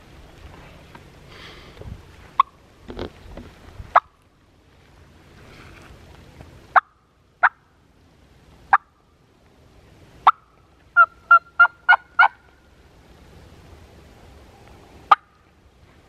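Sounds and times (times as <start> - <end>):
turkey call clucks: 8.7 - 8.9, 10.2 - 12.5
turkey call yelps: 10.2 - 12.5.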